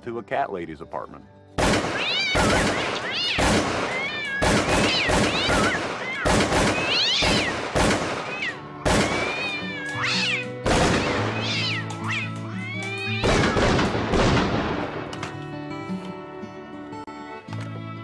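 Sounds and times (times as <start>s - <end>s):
music: 0.0s - 18.0s
shotgun blasts: 1.6s - 9.6s, 10.6s - 11.4s, 13.2s - 15.2s
cats meowing: 1.9s - 13.9s.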